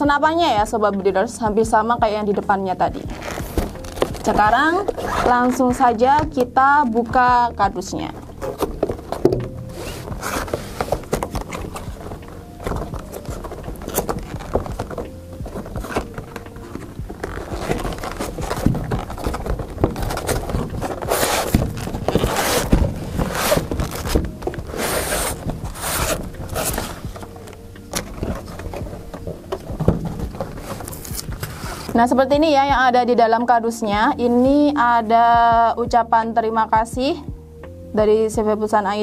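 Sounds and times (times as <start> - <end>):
background music: 0.0 - 39.0
cardboard box scraping and rustling: 3.1 - 5.6, 8.2 - 32.0.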